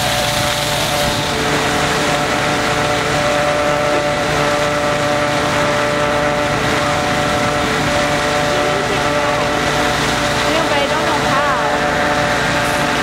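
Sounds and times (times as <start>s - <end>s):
engine-driven machine humming: 0.0s - 13.0s.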